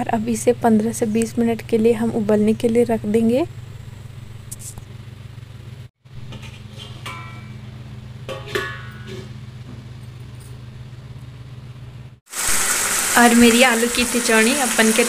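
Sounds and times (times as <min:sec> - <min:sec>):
steady low hum: 0:00.0 - 0:12.2
metal lid clinking: 0:06.3 - 0:07.6, 0:08.3 - 0:09.3.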